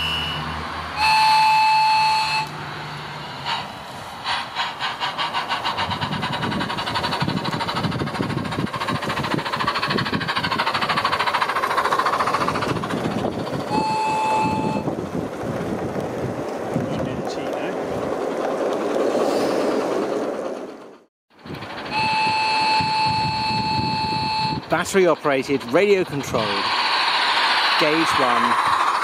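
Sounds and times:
model train whistle toot: 0.0s - 2.6s, 13.7s - 14.8s, 21.9s - 24.6s
steam locomotive chuffing: 1.0s - 29.0s.

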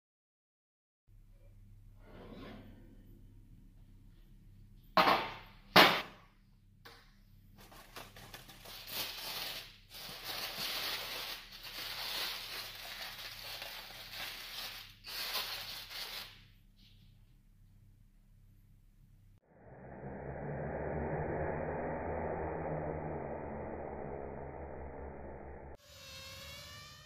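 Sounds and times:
aluminium foil crinkling: 7.6s - 16.6s.

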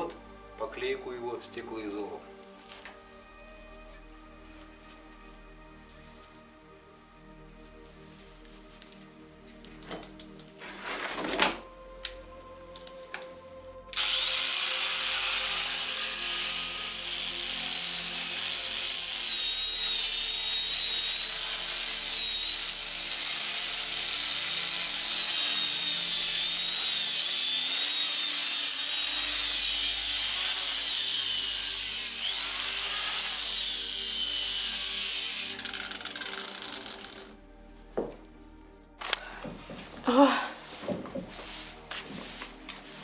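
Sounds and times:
angle grinder sanding wood: 13.9s - 37.3s, 40.6s - 43.0s.

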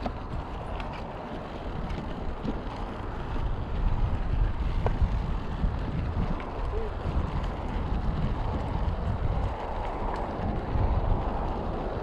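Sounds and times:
bike rolling on dirt trail: 0.0s - 12.0s
wind rumbling on microphone: 0.0s - 12.0s.

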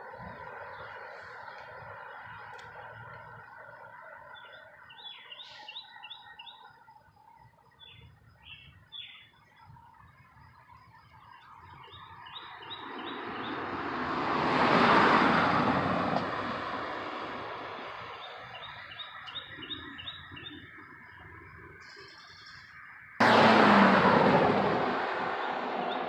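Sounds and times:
bird chirping: 4.2s - 13.6s, 17.8s - 23.1s
car passing by: 12.6s - 18.5s, 23.2s - 26.0s.

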